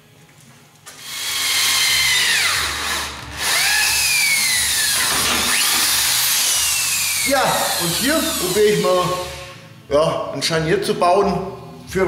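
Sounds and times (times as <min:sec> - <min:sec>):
electric drill whining into metal: 0:00.9 - 0:09.6.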